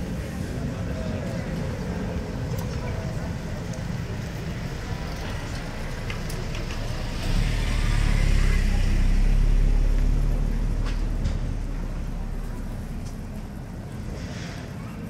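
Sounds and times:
vehicle engine passing by: 4.7s - 15.0s.

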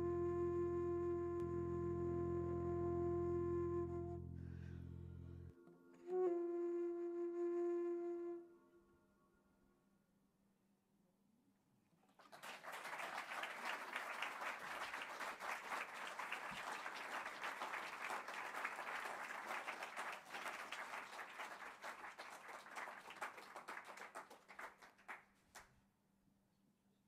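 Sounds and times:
audience applauding: 12.1s - 25.7s.

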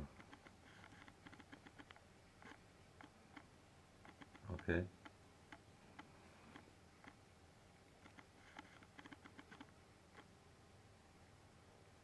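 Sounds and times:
small clicks and taps: 0.0s - 7.2s, 8.0s - 10.3s.

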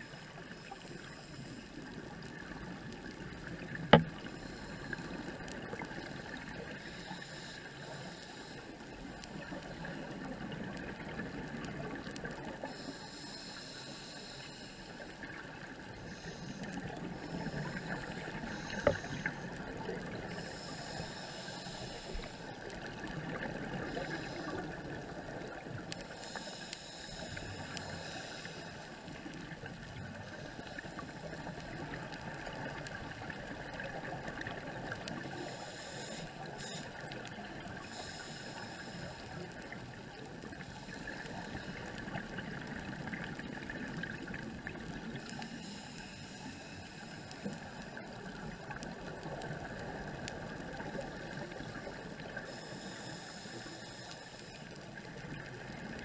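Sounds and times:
muffled underwater noise: 0.0s - 56.0s
scuba exhaust bubbling: 0.0s - 56.0s.

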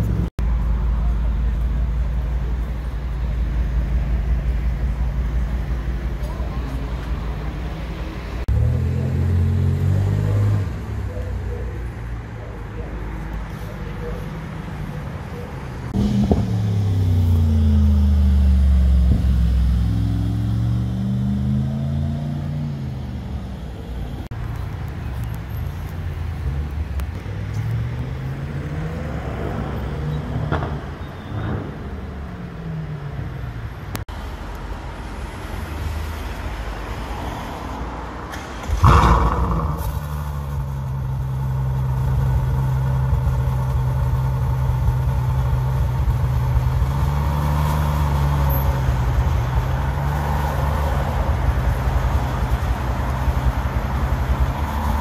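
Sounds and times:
sports cars accelerating: 7.8s - 11.4s, 15.9s - 24.3s, 26.4s - 34.0s, 38.5s - 55.0s
car engine idling: 38.4s - 55.0s.

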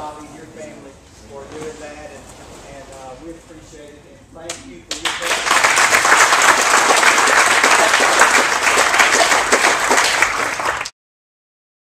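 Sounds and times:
congregation applauding: 4.9s - 10.9s.

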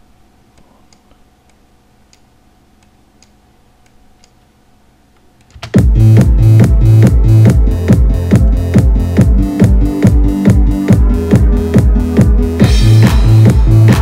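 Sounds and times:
low steady hum: 0.0s - 14.0s
electronic dance music: 5.7s - 14.0s.

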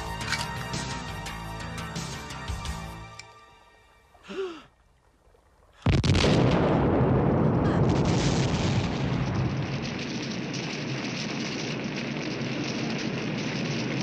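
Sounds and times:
crackling fire: 4.2s - 14.0s
explosion with deep rumble: 5.8s - 14.0s.

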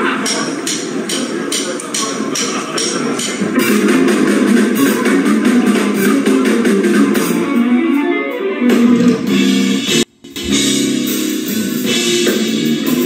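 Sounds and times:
drums: 0.0s - 13.0s
keyboard: 0.0s - 13.0s
electric guitar: 3.6s - 13.0s.

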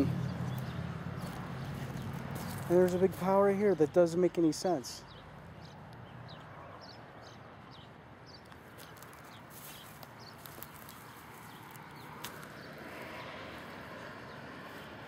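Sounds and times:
soft footsteps on grass: 0.0s - 4.8s, 8.4s - 15.0s.

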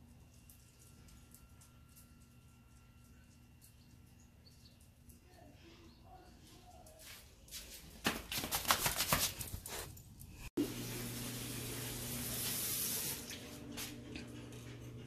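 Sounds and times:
low hum: 0.0s - 6.4s
tap water running into sink: 10.6s - 13.4s.

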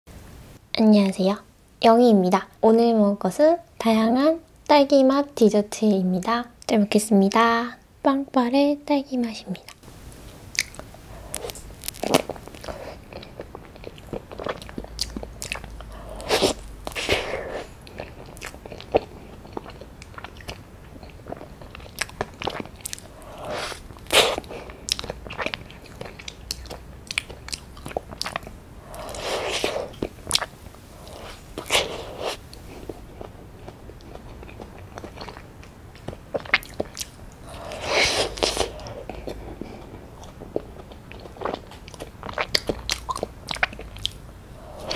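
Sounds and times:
wet mouth clicks and smacks: 10.5s - 12.7s, 41.8s - 44.2s.

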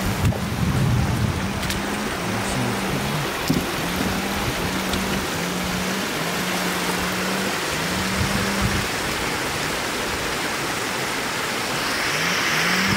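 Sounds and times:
floodwater rushing across road: 0.0s - 12.9s
low droning tone: 11.6s - 12.9s.

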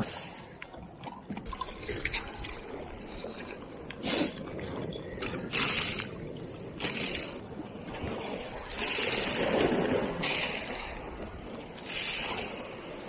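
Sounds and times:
fishing tackle scraping and rustling: 0.9s - 13.0s
sea washing against rocks: 1.5s - 13.0s.

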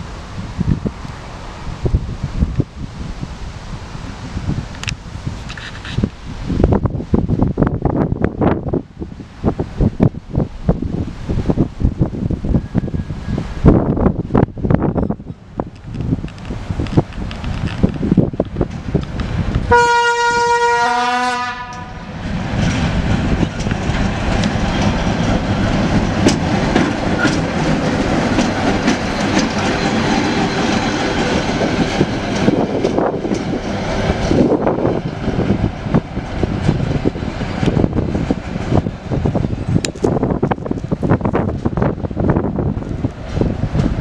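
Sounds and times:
wheels clicking over rail joints: 14.9s - 19.7s, 21.6s - 44.0s
locomotive horn blast: 19.7s - 22.1s.

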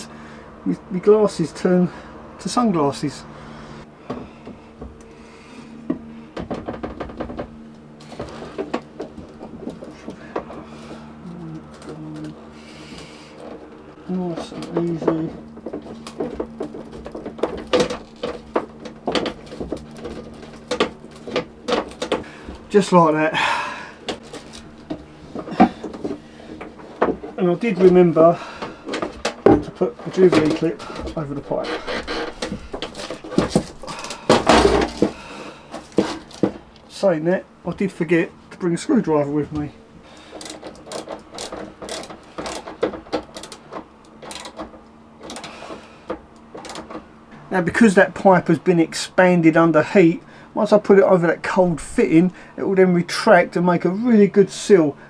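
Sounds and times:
rubber hose rubbing and scraping: 24.1s - 36.9s
hose clip ratcheting clicks: 40.3s - 44.6s.

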